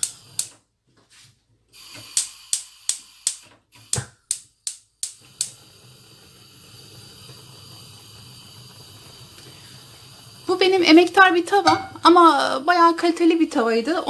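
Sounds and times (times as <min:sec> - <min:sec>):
gas hob igniter clicking: 0:00.0 - 0:00.6, 0:01.8 - 0:12.3
gas burner flame hissing: 0:00.0 - 0:00.7, 0:01.7 - 0:14.0.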